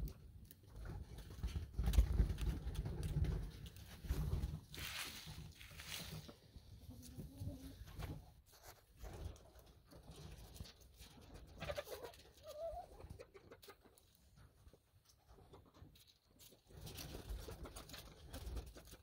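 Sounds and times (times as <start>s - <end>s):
chickens pecking at food: 0.0s - 19.0s
chicken calls: 11.4s - 14.1s.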